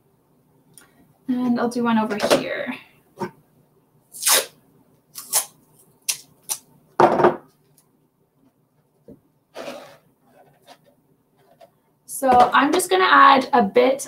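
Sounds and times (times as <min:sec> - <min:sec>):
masking tape ripping: 0:04.2 - 0:04.5, 0:05.1 - 0:06.7.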